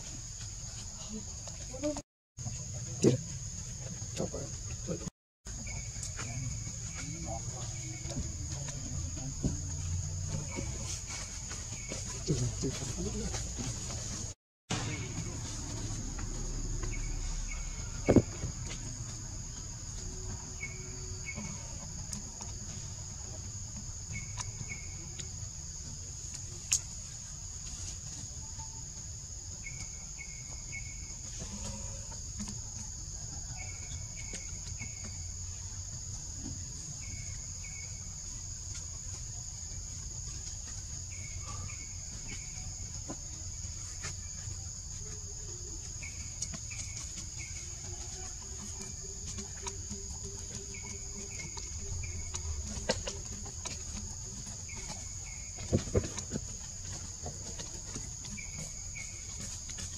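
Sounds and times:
sharp knocks: 18.0 - 18.7.

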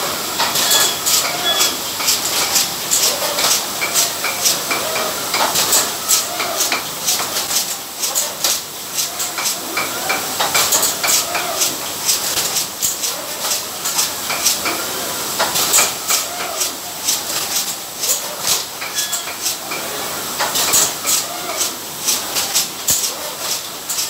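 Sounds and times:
bottling machine clatter: 0.0 - 24.0
machine clicks: 0.4 - 14.8, 20.4 - 24.0.

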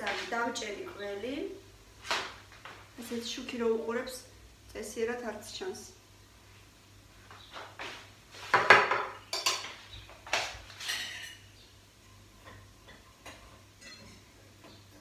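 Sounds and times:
dishes and cutlery clattering: 8.6 - 9.8, 10.7 - 11.5, 12.4 - 14.8.

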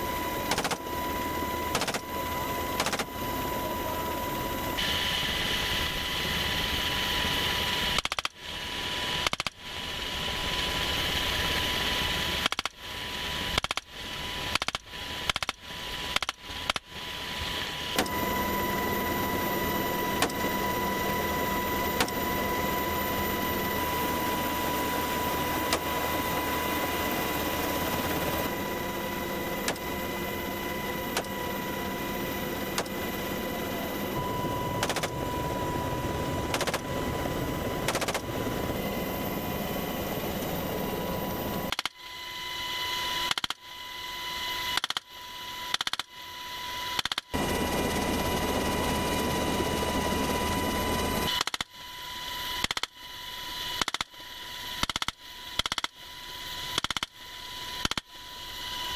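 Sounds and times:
helicopter engine and rotor: 0.0 - 58.9
rifle shots: 34.8 - 35.2, 36.5 - 36.8, 37.8 - 38.3.

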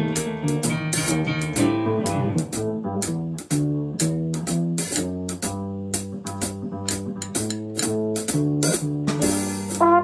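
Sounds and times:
piano chords: 0.0 - 3.5
double bass plucking: 0.0 - 10.0
drum strokes: 0.0 - 10.0.

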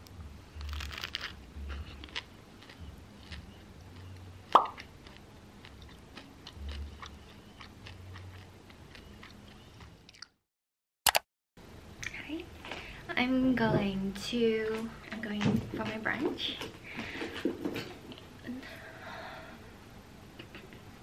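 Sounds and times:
pastry crust crackling: 0.6 - 4.1.

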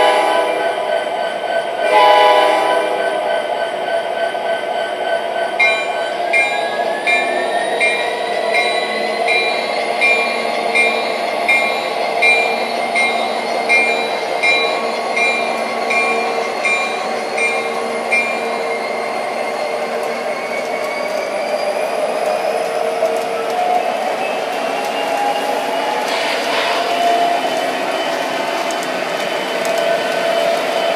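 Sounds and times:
locomotive bell ringing: 0.0 - 20.0.

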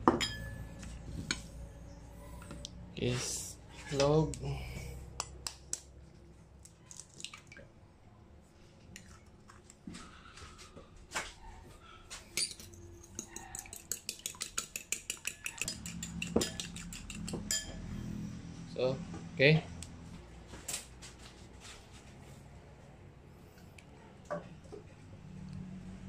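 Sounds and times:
fork beating egg in bowl: 13.0 - 17.7
fork tapping egg on bowl: 13.1 - 17.6.

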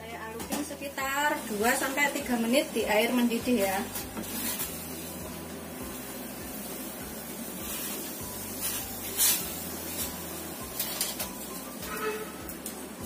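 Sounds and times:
water boiling hard: 0.6 - 12.7.

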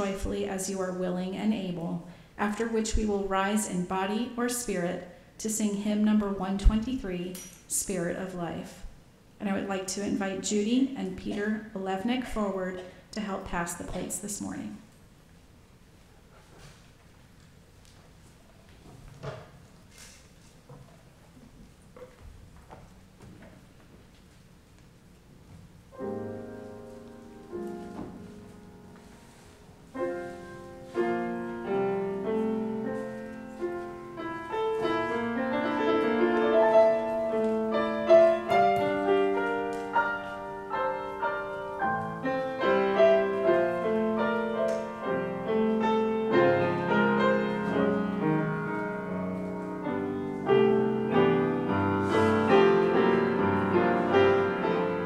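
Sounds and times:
grand piano playing slow piece: 25.9 - 55.0.

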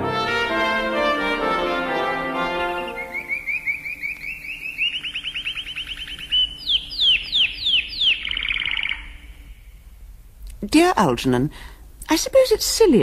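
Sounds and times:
bird chirps and trills: 2.6 - 9.8
bird downward-slurred whistles: 2.7 - 9.6.

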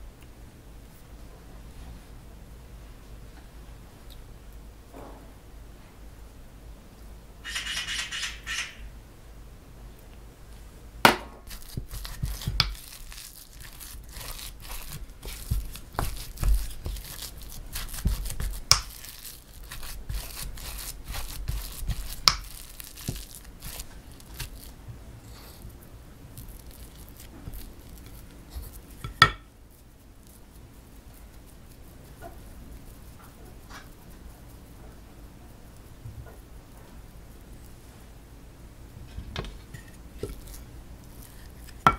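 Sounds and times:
filling squishing in bowl: 11.5 - 24.8
wooden spoon knocking glass: 29.0 - 29.4.

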